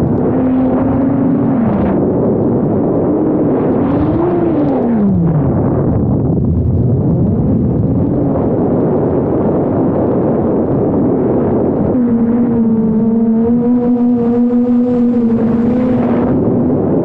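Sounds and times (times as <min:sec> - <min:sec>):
drone motors and propellers whirring: 0:00.0 - 0:17.0
wind noise: 0:00.0 - 0:17.0.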